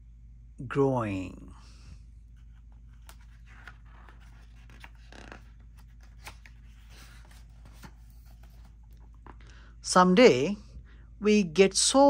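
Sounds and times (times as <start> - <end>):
book pages rustling: 2.3 - 9.4.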